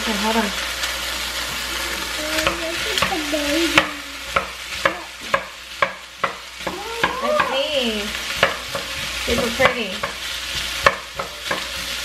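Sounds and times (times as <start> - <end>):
food sizzling in a pan: 0.0 - 12.0
wooden spoon knocking a pan: 3.8 - 7.7, 8.3 - 12.0.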